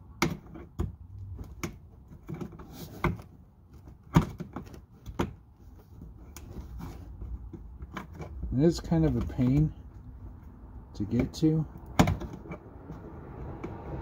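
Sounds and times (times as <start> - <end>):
plastic clicks and knocks: 0.2 - 5.4, 11.1 - 12.6.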